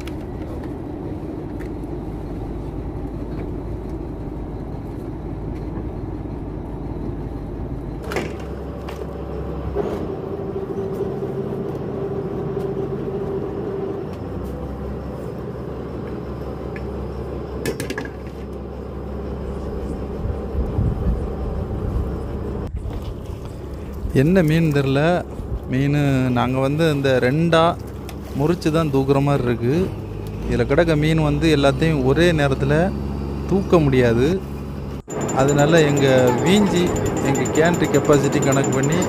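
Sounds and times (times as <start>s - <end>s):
boat engine droning: 0.0s - 17.7s, 18.3s - 22.7s, 23.3s - 39.0s
steady hum: 34.2s - 39.0s.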